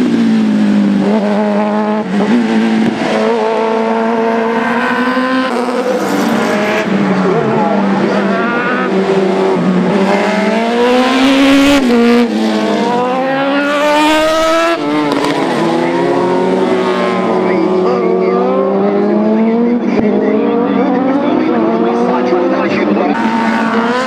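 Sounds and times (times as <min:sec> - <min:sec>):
race car engines revving: 0:00.0 - 0:24.0.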